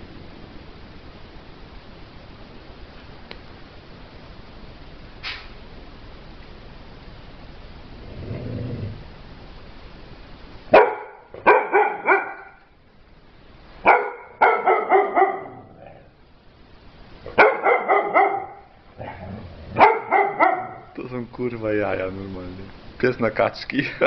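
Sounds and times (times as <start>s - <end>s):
dog barking: 10.7s - 12.6s, 13.8s - 15.8s, 17.3s - 19.2s, 19.8s - 21.0s.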